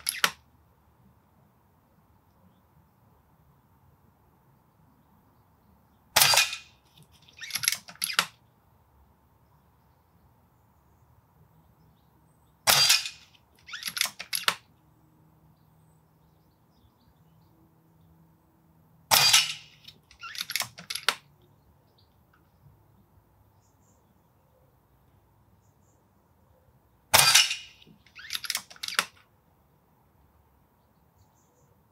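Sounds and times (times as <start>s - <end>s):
rifle lever clicks: 0.0s - 0.4s, 7.4s - 8.4s, 13.7s - 14.6s, 19.2s - 21.2s, 27.2s - 29.2s
air rifle shots: 6.2s - 6.8s, 12.6s - 14.6s, 19.1s - 21.2s, 27.1s - 29.2s.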